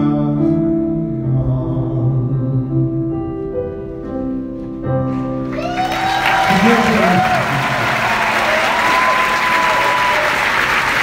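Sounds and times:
piano chords: 0.0s - 11.0s
audience applause and cheers: 5.5s - 11.0s.

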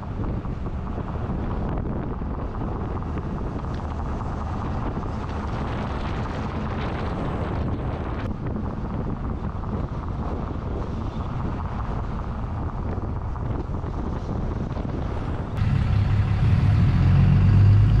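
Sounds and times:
road and tyre noise: 0.0s - 18.0s
wind buffeting camera: 0.0s - 18.0s
steady low hum: 15.3s - 18.0s.

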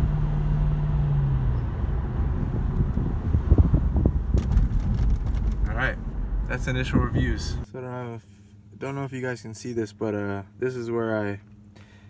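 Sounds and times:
car engine hum: 0.0s - 7.7s
road rumble: 0.0s - 7.7s.

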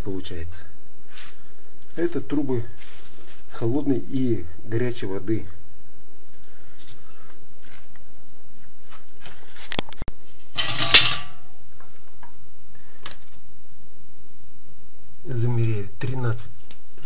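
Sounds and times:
short metallic clatter: 10.6s - 11.4s.

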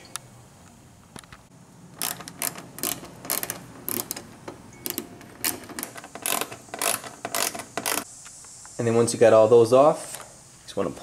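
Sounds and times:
hand ratchet clicking: 2.0s - 8.1s.

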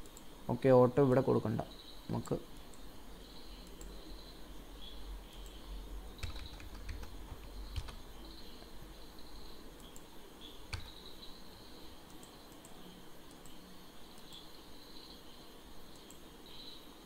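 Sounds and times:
faint hum: 0.0s - 17.0s
computer keyboard typing: 5.4s - 8.1s, 10.7s - 11.0s.

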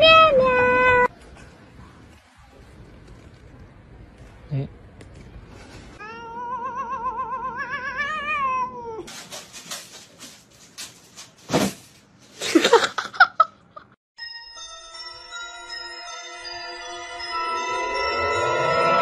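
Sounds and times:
scratchy rustling and scraping: 5.2s - 6.0s, 9.1s - 12.4s
cat yowling: 6.0s - 9.1s.

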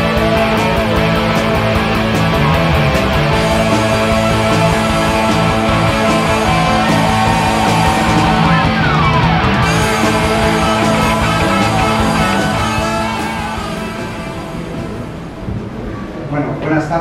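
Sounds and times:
rock music: 0.0s - 15.8s.

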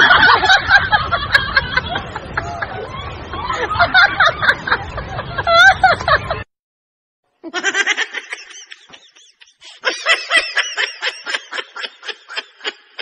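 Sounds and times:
child giggling: 7.4s - 13.0s.

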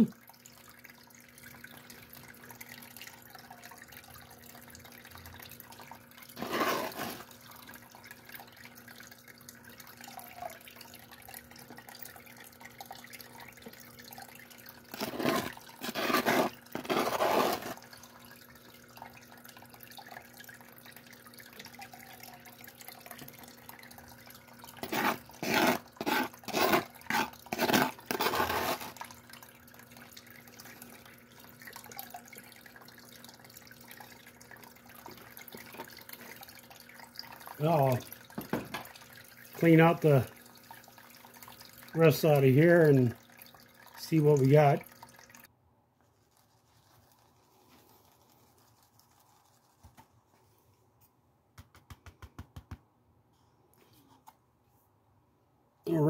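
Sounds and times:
water trickling: 0.0s - 45.5s, 46.2s - 49.9s
faint pump hum: 0.0s - 51.5s, 52.8s - 56.0s
metal scoop scraping gravel: 6.4s - 7.3s, 15.0s - 17.8s, 24.8s - 29.0s.

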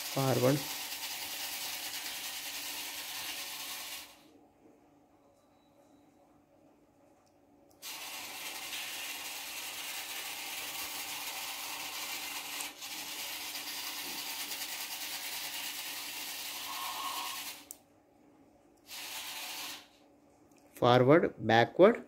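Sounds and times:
small electric motors whirring: 0.0s - 4.2s, 7.8s - 17.8s, 18.9s - 20.0s.

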